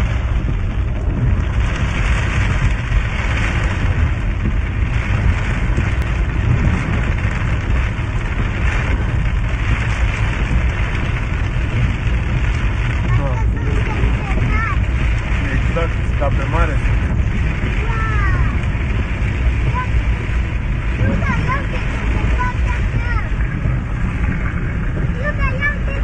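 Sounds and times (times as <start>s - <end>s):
heavy rain falling: 0.0s - 26.0s
low rumble: 0.0s - 26.0s.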